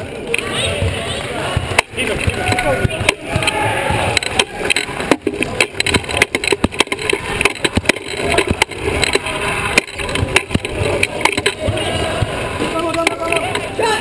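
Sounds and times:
sharp clacks and knocks: 0:01.5 - 0:13.7.

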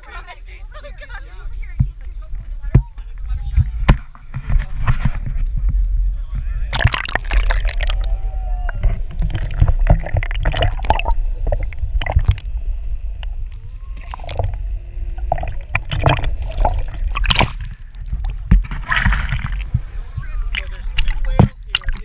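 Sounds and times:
low rumble: 0:01.4 - 0:22.0
water sloshing and gurgling: 0:06.6 - 0:22.0
splashes: 0:06.7 - 0:12.6, 0:13.2 - 0:22.0
faint pitch-bending tones: 0:06.7 - 0:22.0.

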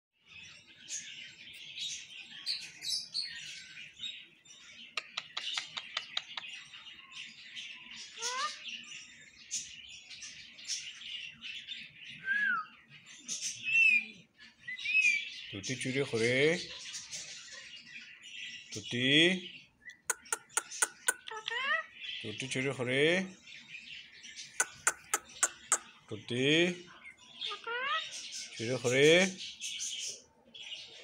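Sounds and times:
parakeet chattering and chirping: 0:01.9 - 0:10.8, 0:14.8 - 0:30.2
sharp bird clicks: 0:04.9 - 0:06.6, 0:19.8 - 0:21.6, 0:24.6 - 0:26.0.

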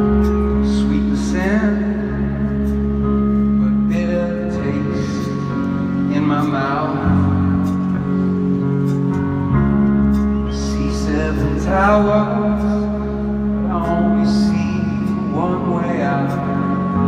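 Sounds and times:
live band playing slow song: 0:00.0 - 0:17.0
man singing: 0:00.4 - 0:02.7, 0:03.6 - 0:08.0, 0:10.5 - 0:17.0.

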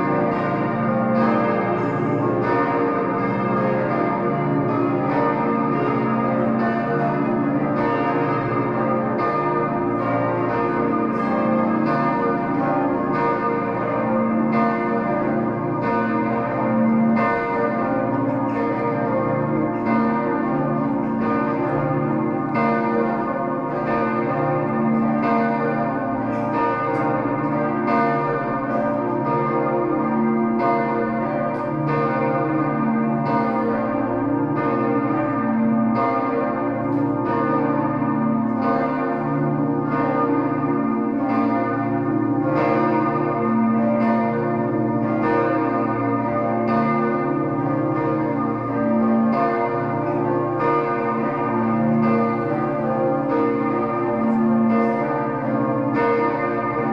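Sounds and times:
church bells ringing in peal: 0:00.0 - 0:56.9.

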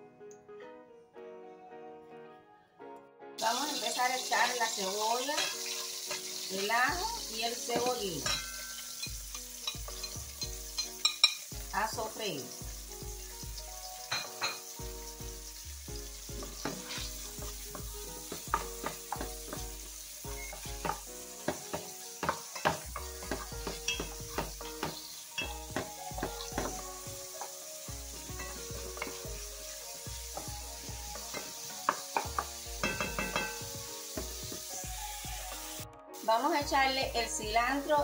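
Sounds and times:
vegetables sizzling in oil: 0:03.4 - 0:38.0
wooden spoon knocking pot: 0:17.4 - 0:19.8, 0:20.5 - 0:26.9, 0:30.3 - 0:34.7.

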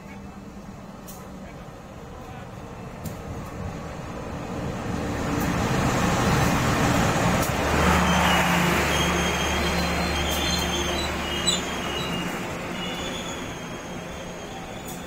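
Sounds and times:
train rumbling past: 0:00.0 - 0:15.0
high wheel squeal: 0:07.8 - 0:15.0.

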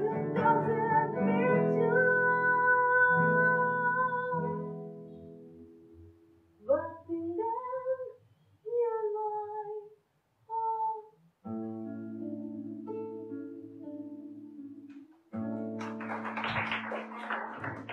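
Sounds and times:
woman singing: 0:00.0 - 0:04.7, 0:06.6 - 0:09.9, 0:10.5 - 0:11.1.

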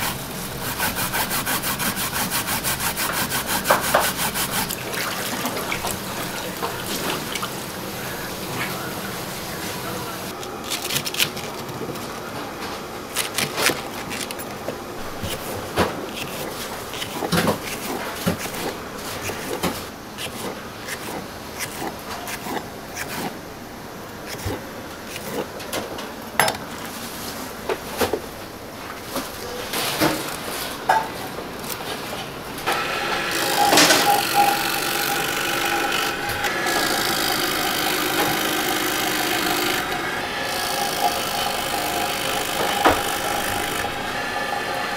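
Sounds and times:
electric vegetable slicer humming: 0:00.0 - 0:11.3, 0:32.6 - 0:44.9
knife chopping on wooden board: 0:42.6 - 0:43.5.

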